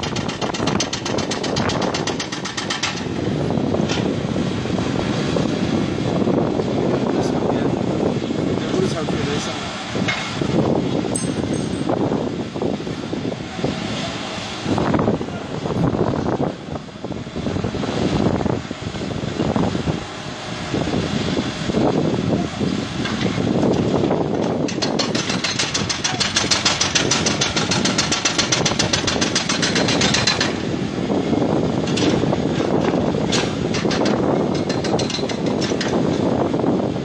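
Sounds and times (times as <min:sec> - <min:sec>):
hydraulic breaker hammering concrete: 0:00.0 - 0:03.2, 0:23.0 - 0:30.8, 0:31.8 - 0:36.3
excavator engine running: 0:00.0 - 0:08.7, 0:09.4 - 0:37.0.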